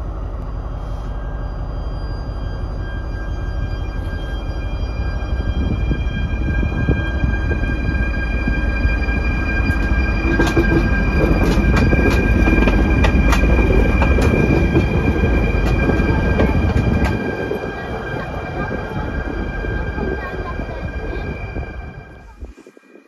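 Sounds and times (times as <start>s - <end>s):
locomotive engine rumble: 0.0s - 22.7s
high-pitched whine: 0.0s - 23.0s
wheels clicking over rail: 10.3s - 17.4s.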